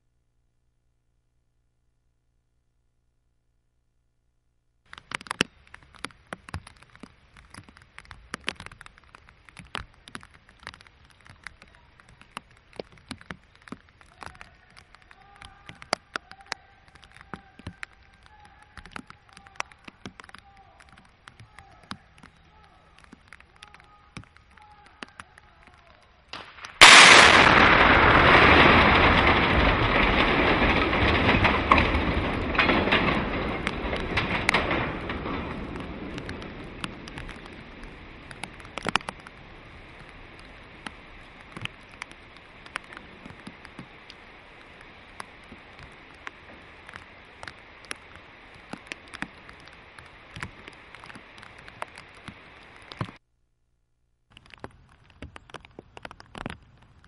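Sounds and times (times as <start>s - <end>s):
small knocks: 4.9s - 53.2s, 54.3s - 57.0s
loud explosive blast: 26.4s - 38.9s
long rumble: 26.5s - 53.0s.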